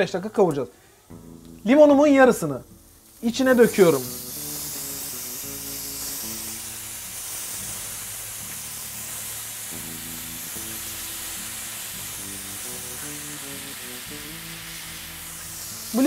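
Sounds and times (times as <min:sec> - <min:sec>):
background music: 0:01.1 - 0:16.0
rice sizzling in a frying pan: 0:01.5 - 0:16.0.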